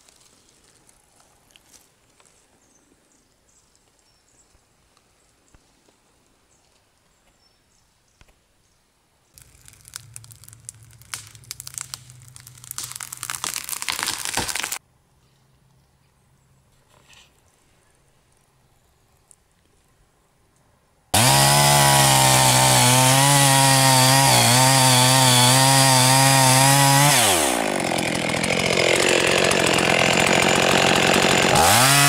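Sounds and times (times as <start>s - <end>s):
branches snapping and tearing: 0.0s - 2.3s, 9.4s - 14.8s, 21.2s - 32.0s
tree trunk cracking: 9.4s - 14.8s, 21.2s - 32.0s
tree trunk hitting ground: 9.4s - 14.8s, 22.4s - 32.0s.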